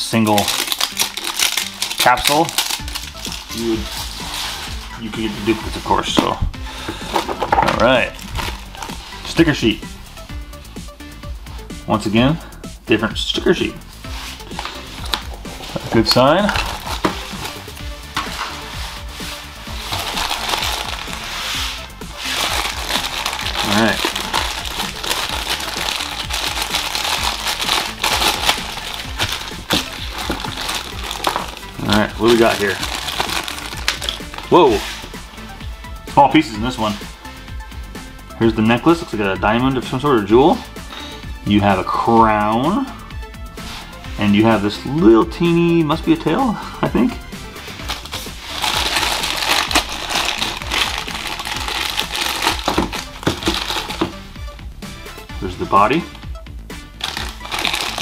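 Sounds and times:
background music: 0:00.0 - 0:58.0
foil wrapper crinkling: 0:00.1 - 0:05.0, 0:08.1 - 0:09.1, 0:14.4 - 0:18.7, 0:19.7 - 0:35.0, 0:47.8 - 0:54.1, 0:57.0 - 0:58.0.

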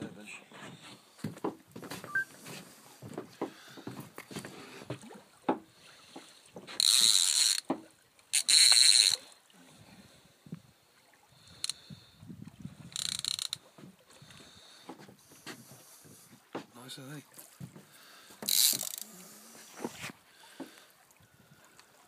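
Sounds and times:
fishing reel ratcheting: 0:06.8 - 0:07.7, 0:08.3 - 0:09.2, 0:12.9 - 0:13.6, 0:18.4 - 0:19.1.

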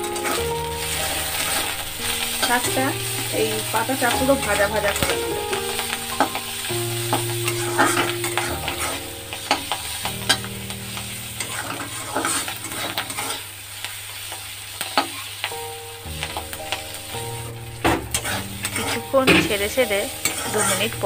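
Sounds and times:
metal spatula scraping a pan: 0:00.0 - 0:05.1, 0:05.7 - 0:10.4, 0:11.4 - 0:13.4, 0:17.9 - 0:21.0
leaves sizzling in oil: 0:00.0 - 0:21.0.

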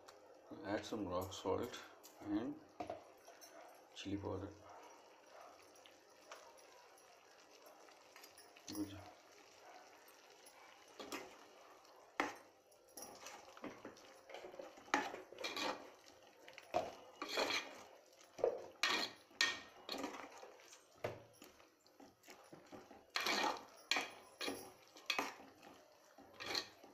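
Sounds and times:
metal ladle scraping a pot: 0:13.1 - 0:20.6, 0:22.2 - 0:26.9.

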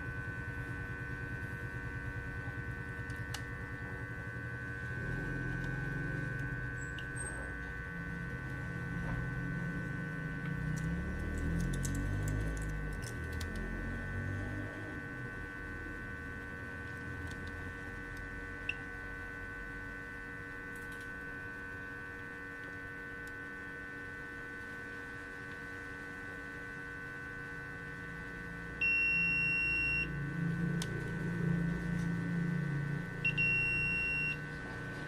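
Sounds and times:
electrical hum: 0:00.0 - 0:35.0
multimeter continuity beep: 0:00.3 - 0:10.8, 0:12.5 - 0:20.7, 0:28.7 - 0:34.9.

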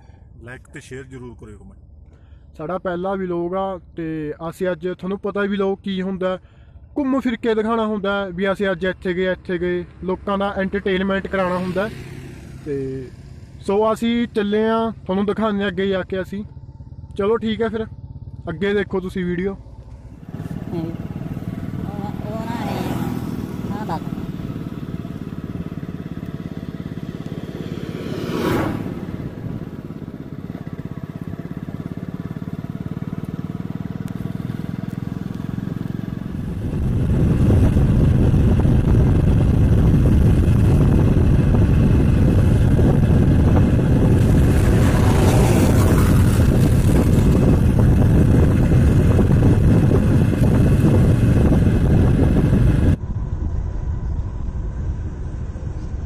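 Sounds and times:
motorcycle engine running: 0:08.5 - 0:56.0
wind rushing on microphone: 0:20.3 - 0:32.8, 0:35.4 - 0:56.0.

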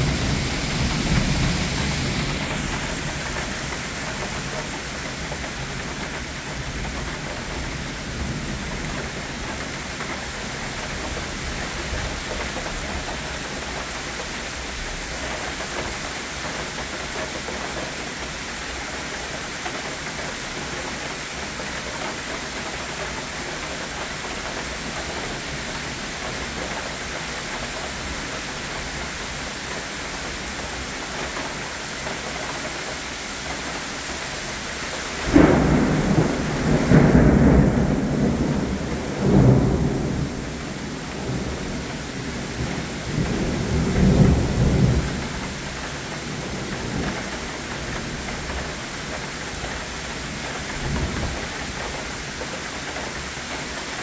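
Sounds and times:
thunder crack: 0:00.0 - 0:04.8, 0:35.2 - 0:45.6
rain hissing on leaves: 0:00.0 - 0:54.0.

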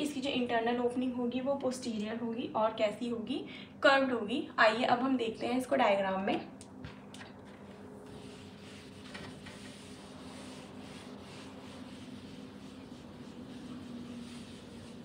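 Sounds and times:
low steady hum: 0:00.0 - 0:15.0
marker scratching on whiteboard: 0:08.1 - 0:15.0.

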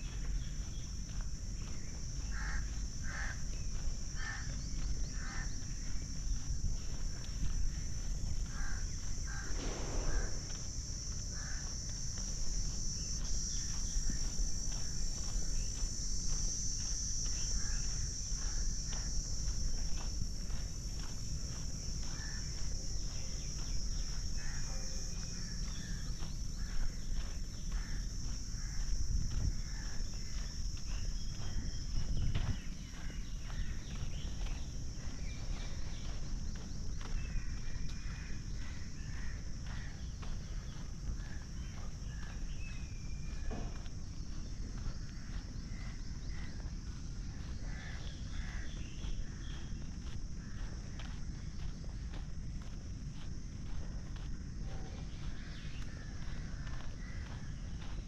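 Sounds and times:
footsteps on track: 0:00.0 - 0:58.0
insects droning: 0:00.0 - 0:58.0
low rumble: 0:09.4 - 0:11.3.

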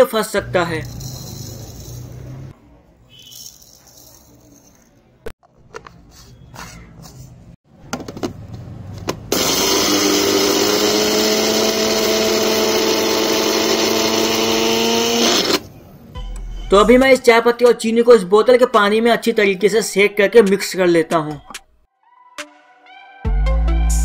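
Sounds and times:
mixer grinder motor whine: 0:09.3 - 0:15.7.

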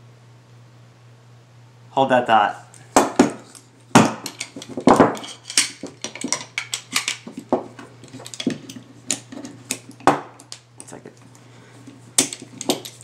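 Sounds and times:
metal objects clinking: 0:04.2 - 0:09.6, 0:12.2 - 0:13.0.

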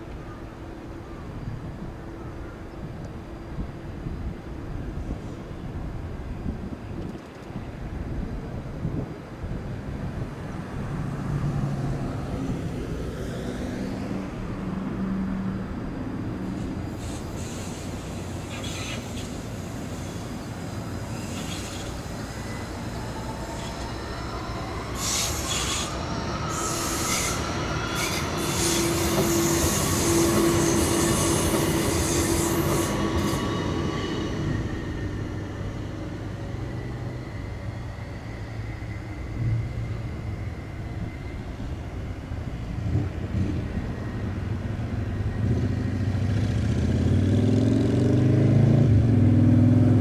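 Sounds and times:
tram wheels squealing: 0:16.4 - 0:46.4
tram motor whine: 0:16.6 - 0:47.0.

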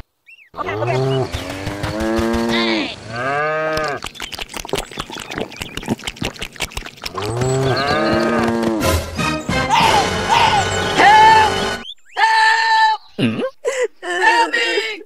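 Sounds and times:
cow mooing: 0:00.7 - 0:04.0, 0:07.2 - 0:08.8
rapid irregular clicking: 0:01.3 - 0:03.1.

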